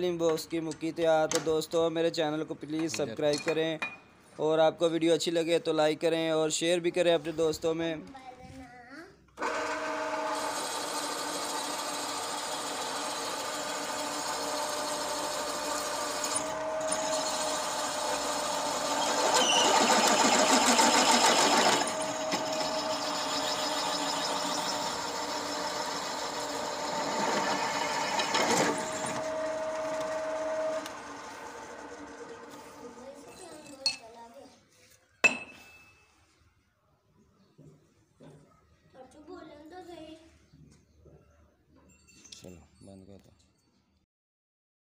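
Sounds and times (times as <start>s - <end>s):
pillar drill boring metal: 9.4s - 33.8s.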